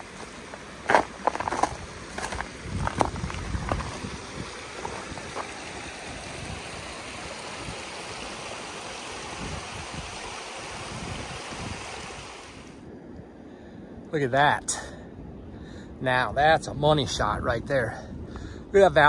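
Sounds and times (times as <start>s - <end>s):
footsteps on trail: 0.0s - 5.9s
rushing wind: 0.0s - 19.0s
wind gusts rumbling on microphone: 0.9s - 19.0s.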